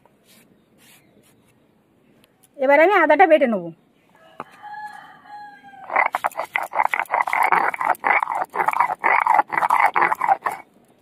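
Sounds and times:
stone roller scraping on slab: 5.8 - 10.6.

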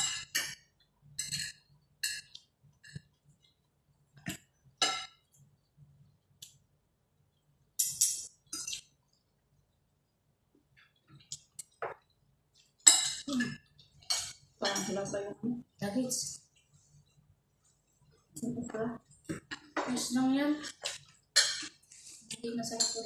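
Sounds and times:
cutlery clinking on plates: 1.2 - 3.0, 4.2 - 5.2, 12.8 - 15.0, 20.8 - 21.8, 22.7 - 23.0.

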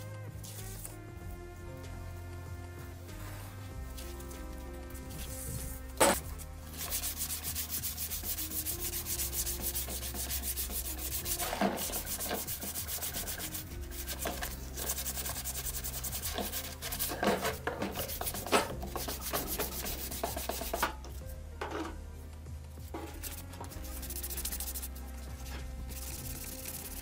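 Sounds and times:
hand sanding with abrasive paper: 6.7 - 20.8, 23.1 - 27.0.

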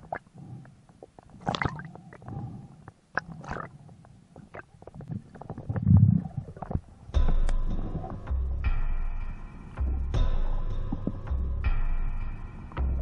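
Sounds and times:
rumble of moving water: 0.0 - 13.0.

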